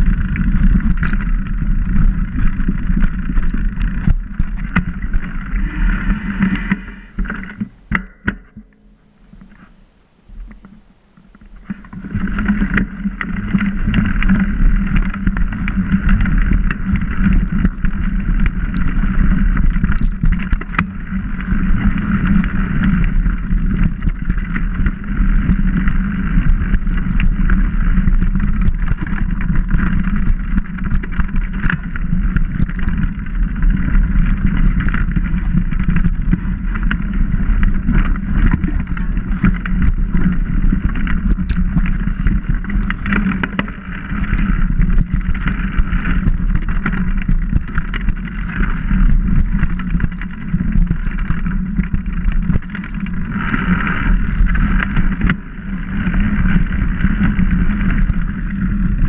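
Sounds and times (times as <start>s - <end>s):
bike tyres and wind rumble: 0.0s - 59.0s
sharp clicks and knocks: 6.4s - 9.7s, 37.9s - 53.8s.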